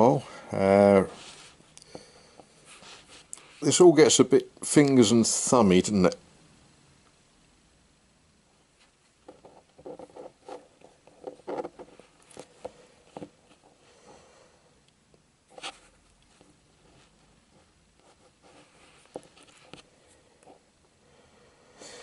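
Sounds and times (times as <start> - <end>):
small scratchy clicks and rustles: 1.2 - 3.7, 8.5 - 13.8, 15.1 - 20.6.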